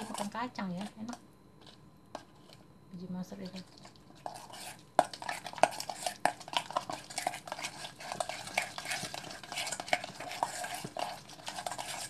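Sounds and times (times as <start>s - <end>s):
metal spoon scraping steel bowl: 0.0s - 0.9s, 3.5s - 12.0s.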